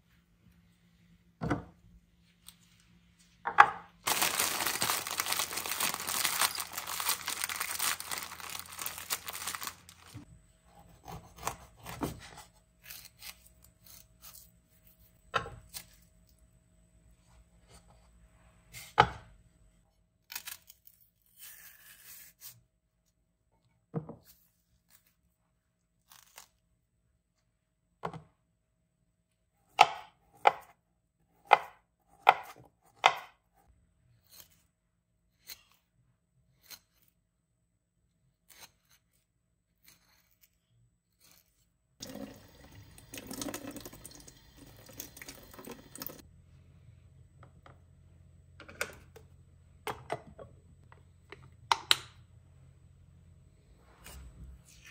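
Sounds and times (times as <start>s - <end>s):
tap water running: 42.0s - 46.2s.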